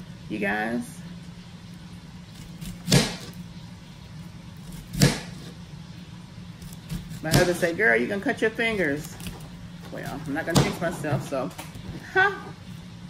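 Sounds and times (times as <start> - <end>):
steady low hum: 0.0 - 13.0
knife chopping onion on plastic board: 2.6 - 3.4, 4.7 - 5.6, 6.6 - 7.8, 8.8 - 11.6.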